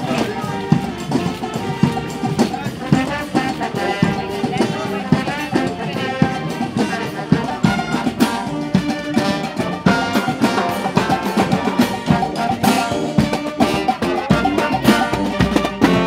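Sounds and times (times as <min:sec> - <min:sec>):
marching band playing: 0:00.0 - 0:16.0
snare and bass drums: 0:00.0 - 0:16.0
sustained brass notes: 0:00.0 - 0:16.0.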